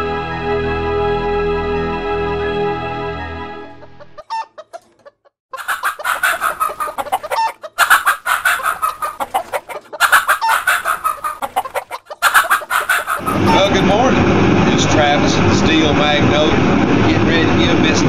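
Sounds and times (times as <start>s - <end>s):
hen clucking and squawking: 3.7s - 13.9s.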